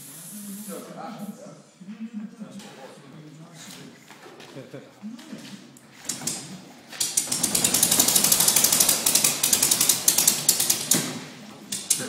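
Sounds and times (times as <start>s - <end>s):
small piston engine crackling: 6.1s - 11.1s.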